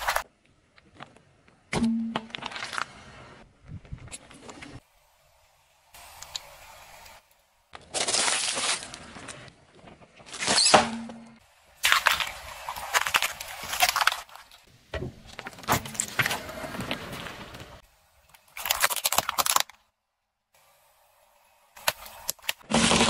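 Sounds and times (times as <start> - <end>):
objects crunching under tyre: 2.1 - 3.2, 11.8 - 14.6.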